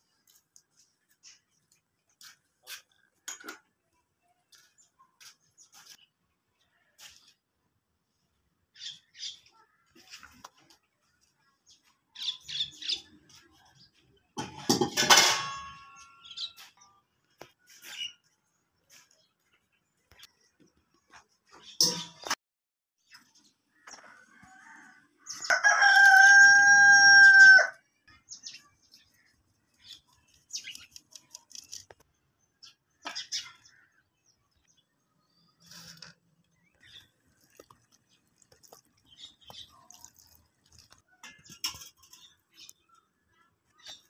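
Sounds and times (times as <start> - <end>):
steel bowls clinking and scraping: 14.4 - 16.3, 37.2 - 42.5
rooster crowing: 24.3 - 27.8.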